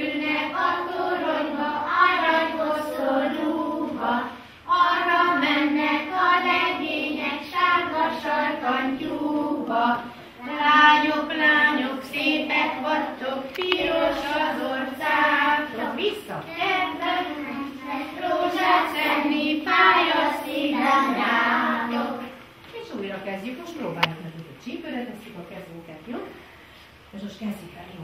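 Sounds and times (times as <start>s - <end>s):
children singing in unison: 0.0s - 15.9s, 16.6s - 22.2s.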